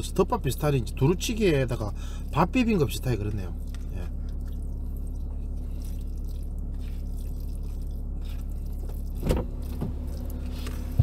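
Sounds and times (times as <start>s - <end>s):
low car cabin hum: 0.0s - 11.0s
soft chewing: 3.5s - 11.0s.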